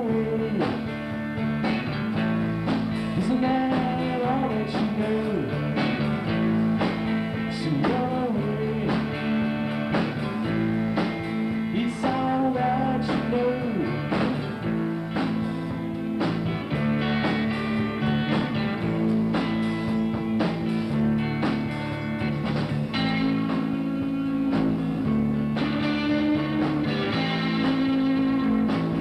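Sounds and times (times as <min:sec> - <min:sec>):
man singing: 0:00.0 - 0:01.0, 0:03.1 - 0:05.8, 0:07.3 - 0:09.4, 0:11.6 - 0:14.6
rock band playing: 0:00.0 - 0:29.0.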